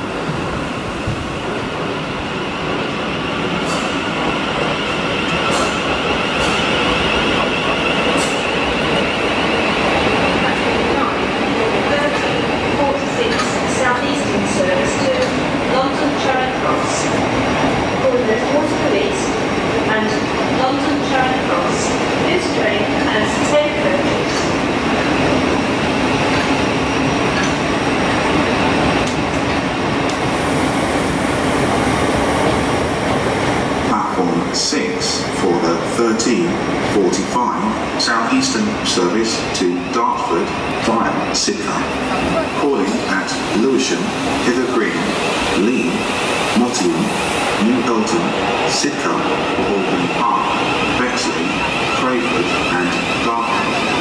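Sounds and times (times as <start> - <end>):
train running on rails: 0.0 - 54.0
electric train running whine: 39.2 - 54.0.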